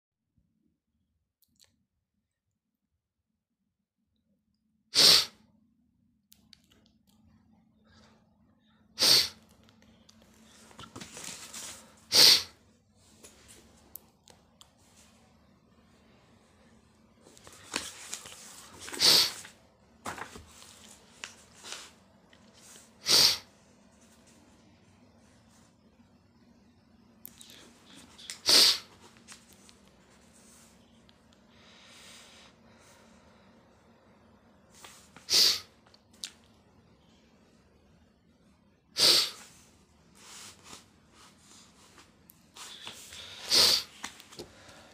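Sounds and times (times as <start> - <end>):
book pages flipping: 10.2 - 12.0, 17.2 - 22.9, 29.0 - 30.6, 40.2 - 43.3, 43.9 - 44.5
paper rustling: 10.4 - 12.0, 17.2 - 21.9.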